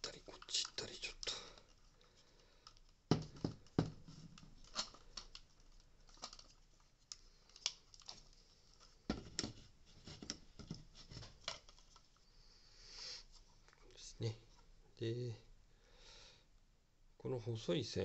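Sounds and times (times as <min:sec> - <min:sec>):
plastic parts clicking and scraping: 0:00.0 - 0:12.2.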